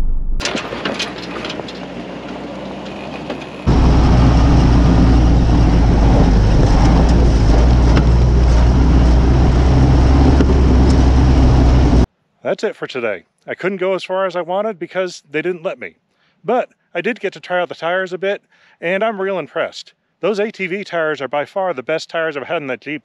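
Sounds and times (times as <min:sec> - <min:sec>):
vehicle engine driving: 0:00.0 - 0:12.1
gravel crunching under tires: 0:00.4 - 0:12.1.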